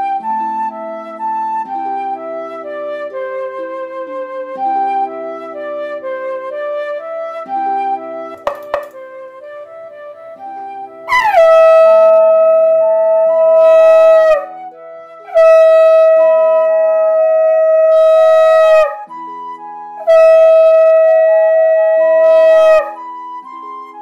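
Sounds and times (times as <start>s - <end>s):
conch shell blasts: 8.4s - 9.0s, 11.1s - 13.5s
soft stepped melody: 8.4s - 9.2s.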